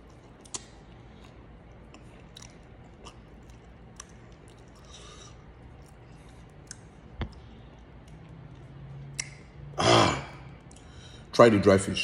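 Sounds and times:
chewing and wet mouth clicks: 0.0s - 9.5s.

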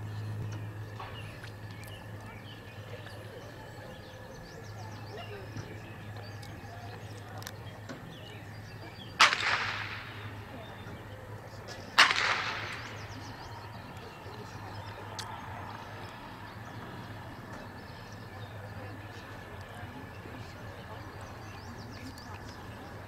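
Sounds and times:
pistol shots with echo: 9.2s - 10.7s, 11.9s - 13.5s.

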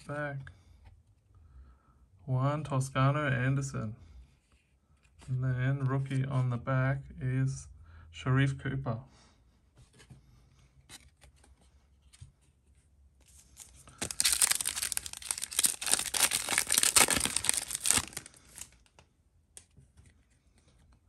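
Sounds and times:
plastic wrapper tearing and crinkling: 13.3s - 19.0s.

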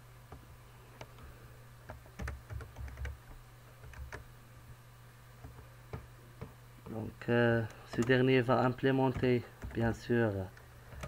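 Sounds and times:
steady low hum: 0.0s - 11.0s
keyboard typing: 1.9s - 4.3s, 7.6s - 8.3s.

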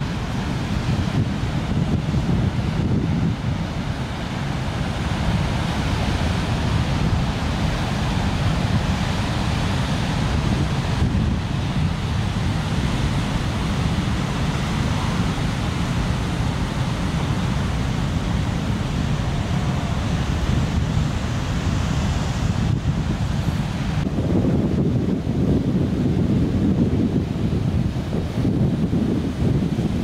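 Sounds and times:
heavy ocean surf breaking: 0.0s - 30.0s
wind buffeting microphone: 0.0s - 30.0s.

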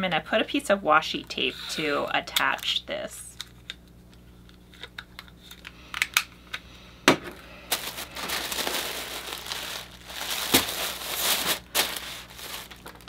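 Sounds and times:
paper mailer crinkling: 7.4s - 13.0s.

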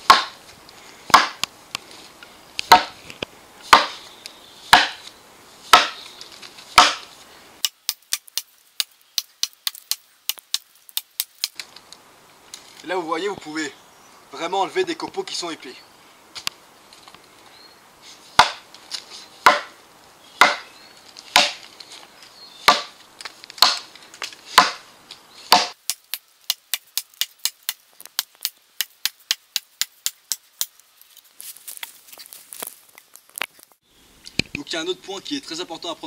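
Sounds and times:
axe chopping into log: 0.0s - 0.4s, 1.1s - 1.4s, 2.7s - 3.0s, 3.7s - 4.0s, 4.7s - 5.1s, 5.7s - 6.0s, 6.8s - 11.5s, 18.4s - 18.6s, 19.4s - 19.7s, 20.4s - 20.7s, 21.3s - 21.6s, 22.7s - 23.0s, 23.6s - 23.9s, 24.5s - 24.8s, 25.5s - 30.7s.

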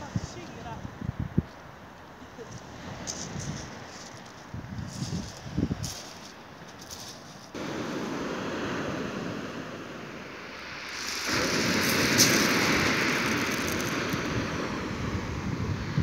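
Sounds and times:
wind buffeting microphone: 0.0s - 1.7s, 2.4s - 16.0s
surf breaking on shingle: 10.5s - 15.0s.

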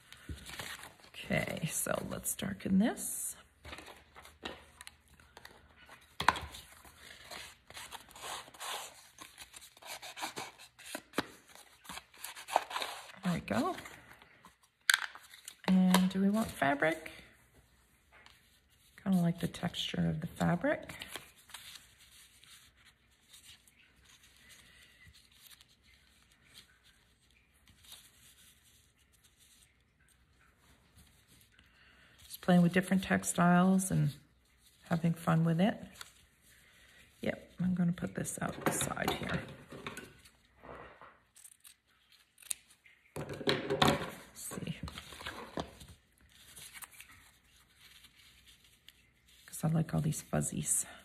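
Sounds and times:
paper rustling and scraping: 0.0s - 2.1s, 3.6s - 17.0s, 18.2s - 30.1s, 44.4s - 50.0s.

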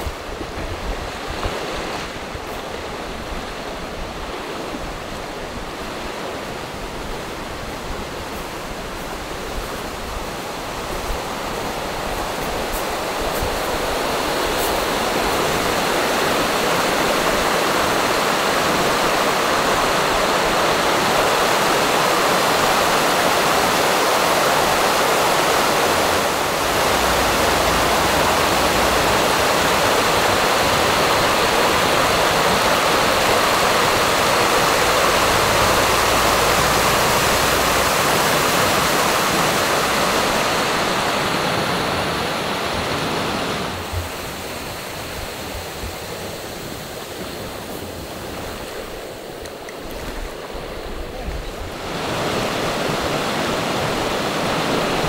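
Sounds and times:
fast stream rushing: 0.0s - 55.0s.

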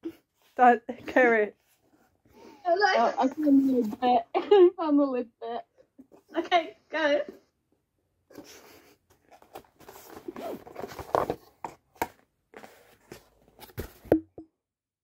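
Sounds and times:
cardboard and packing rustling: 8.3s - 14.2s.

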